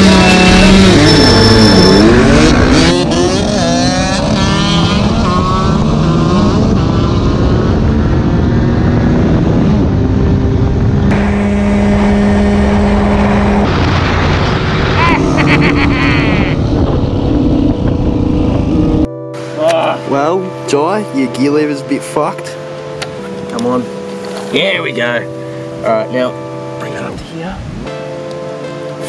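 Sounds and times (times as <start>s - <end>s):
dirt bike engine revving: 0.0s - 19.1s.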